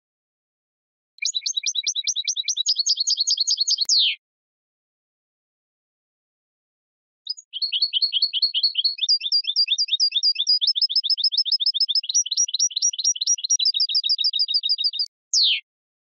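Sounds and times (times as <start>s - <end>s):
goldfinch twittering song: 1.2s - 4.2s, 7.3s - 15.6s.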